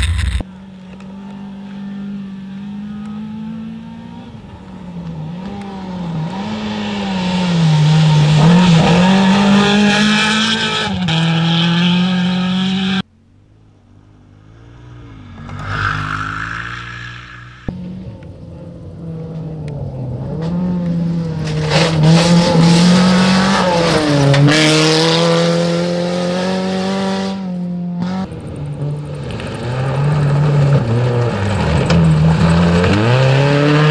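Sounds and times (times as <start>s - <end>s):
rally car engine revving: 0.0s - 13.1s, 14.1s - 33.9s.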